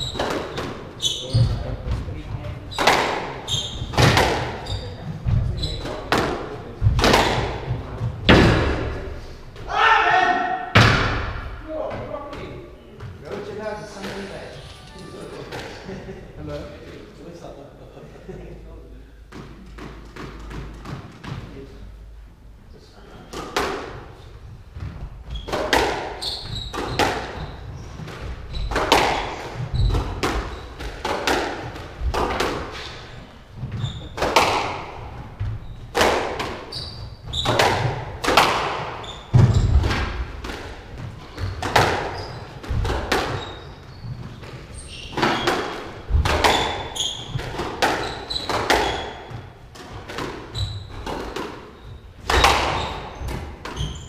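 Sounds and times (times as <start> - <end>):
squash ball hits echoing: 2.5 - 9.7, 10.6 - 11.7, 24.8 - 54.0.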